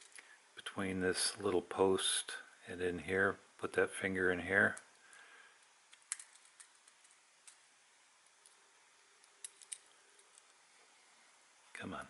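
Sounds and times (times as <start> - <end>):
faint light clicks of small parts: 0.0 - 0.4, 4.6 - 10.7.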